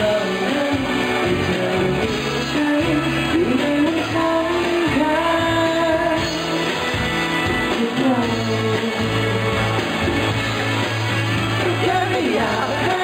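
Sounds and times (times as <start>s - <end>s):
man singing into microphone: 0.0s - 6.6s, 7.7s - 9.7s, 11.6s - 13.0s
instrumental accompaniment: 0.0s - 13.0s.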